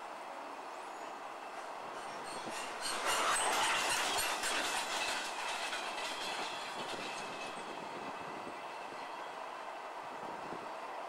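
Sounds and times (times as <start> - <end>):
wheels clacking over rail joints: 1.7 - 8.4
freight wagons rolling past: 1.9 - 7.9.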